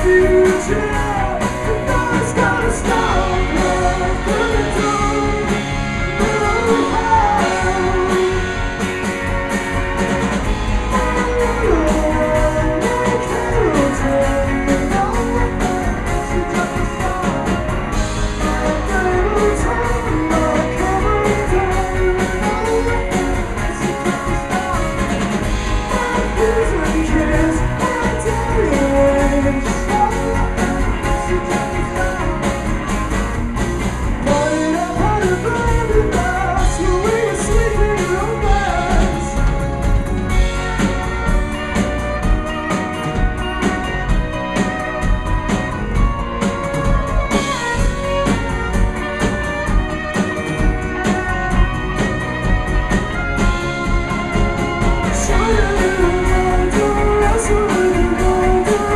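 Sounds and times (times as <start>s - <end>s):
man singing: 0.0s - 9.0s, 10.7s - 32.9s, 34.2s - 41.2s, 55.0s - 58.9s
live rock band playing: 0.0s - 58.9s.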